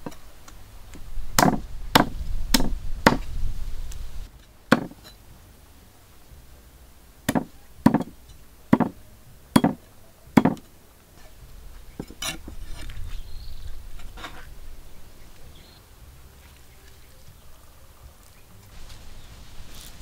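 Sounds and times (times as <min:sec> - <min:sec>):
cleaver chopping on wooden block: 0:01.4 - 0:03.3, 0:04.7 - 0:05.0, 0:07.3 - 0:08.1, 0:08.7 - 0:09.0, 0:09.6 - 0:09.8, 0:10.4 - 0:10.6
scraping and light knocks: 0:10.6 - 0:14.7.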